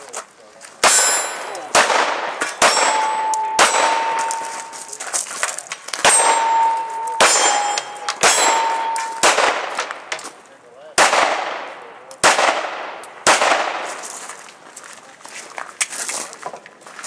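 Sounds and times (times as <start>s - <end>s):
pistol shots: 0.8s - 4.7s, 5.9s - 10.2s, 11.0s - 14.0s
steel targets ringing: 0.8s - 5.0s, 6.0s - 9.8s.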